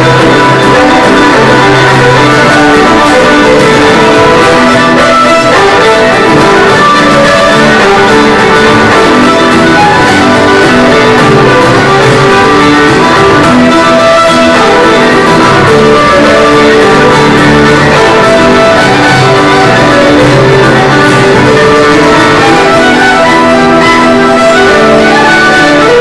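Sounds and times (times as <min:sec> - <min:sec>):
strummed acoustic guitars: 0:00.0 - 0:25.2
fiddle melody: 0:00.0 - 0:26.0.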